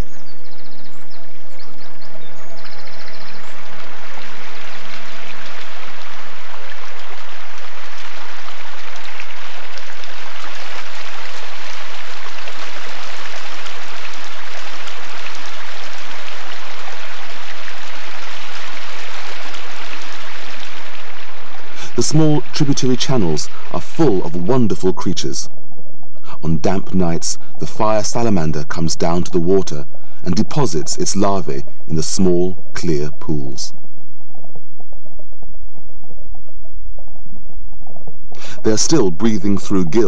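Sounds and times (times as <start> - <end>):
background music: 1.0 - 25.5
stream running over rocks: 1.3 - 24.7.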